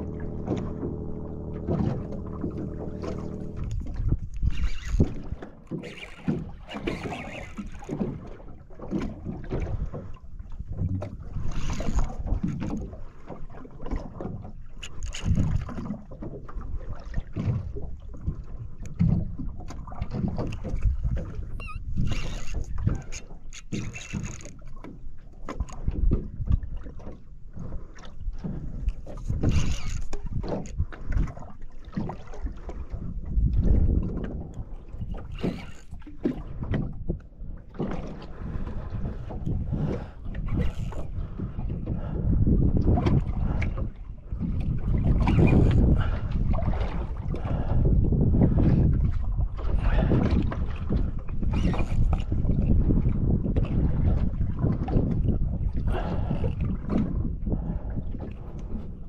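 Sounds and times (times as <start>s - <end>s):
wind on microphone: 0.0s - 13.0s, 13.6s - 59.0s
water slapping against boat hull: 0.0s - 59.0s.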